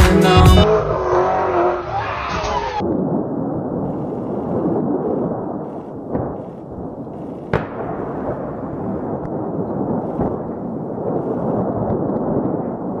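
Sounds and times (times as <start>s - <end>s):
distant explosion crack: 2.8s - 13.0s
heavy explosion rumble: 2.8s - 13.0s.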